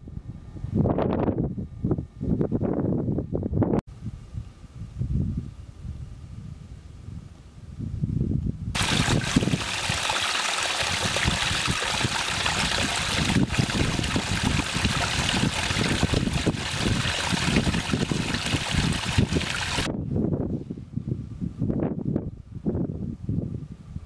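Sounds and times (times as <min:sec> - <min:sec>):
wind on microphone: 0:00.0 - 0:24.0
stream splashing over rocks: 0:08.8 - 0:19.9.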